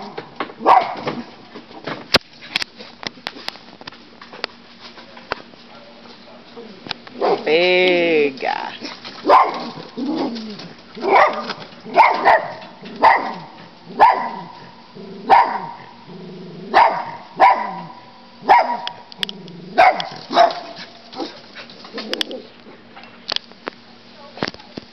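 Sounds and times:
dog barking: 0.6 - 1.1, 7.2 - 7.5, 9.2 - 9.8, 11.0 - 15.8, 16.7 - 19.0, 19.8 - 21.4.

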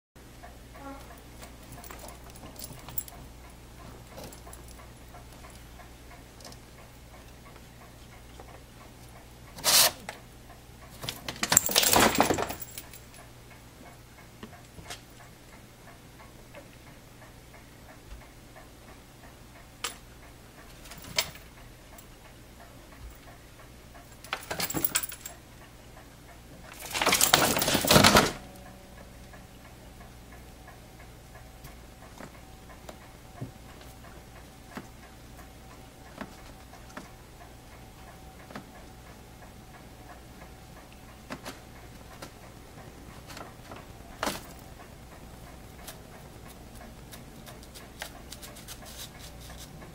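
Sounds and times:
faint steady hum: 0.2 - 49.9
rustling and scraping: 47.5 - 49.9.

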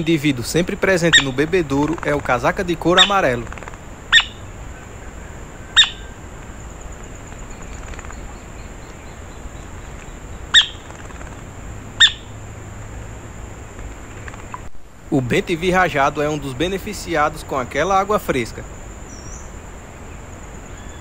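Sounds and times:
bird giving sharp calls: 0.8 - 12.4.

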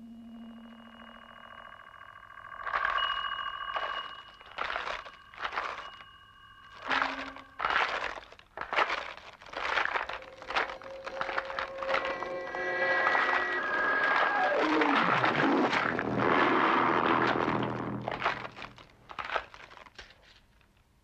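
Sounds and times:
steady high tones: 0.0 - 7.6, 10.2 - 16.7
bones cracking and crunching: 3.8 - 6.1, 6.7 - 20.9.

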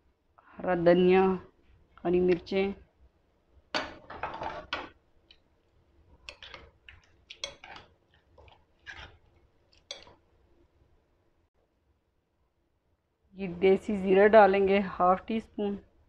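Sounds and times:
spoon stirring wet salad: 4.5 - 10.4.

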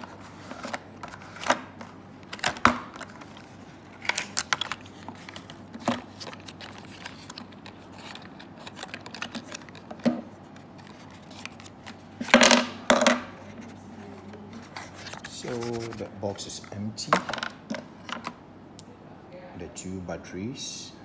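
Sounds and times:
cardboard scraping: 13.4 - 16.1.

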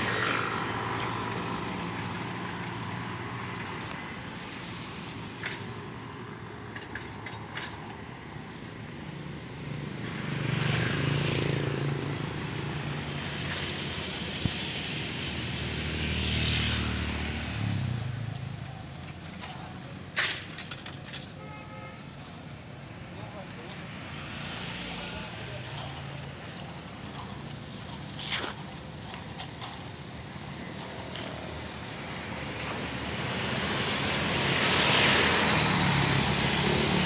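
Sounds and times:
vehicles passing: 0.0 - 37.0.

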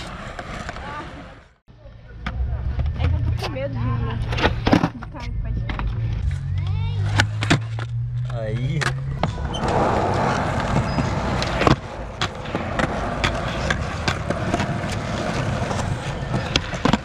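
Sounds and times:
skateboard wheels rolling on concrete: 0.0 - 1.6, 5.8 - 17.0
skateboard clacking: 8.8 - 17.0.

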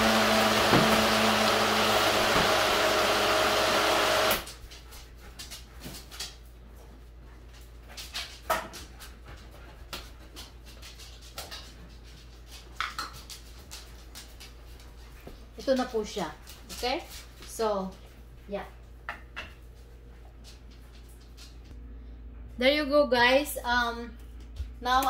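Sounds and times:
blender running: 0.0 - 4.5.

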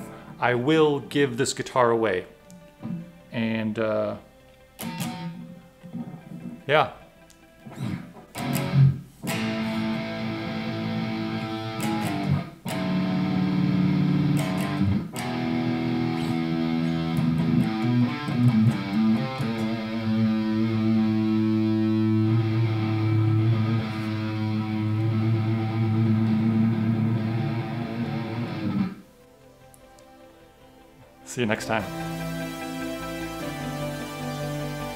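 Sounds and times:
electric guitar through an amp: 4.8 - 29.1, 31.7 - 34.9.

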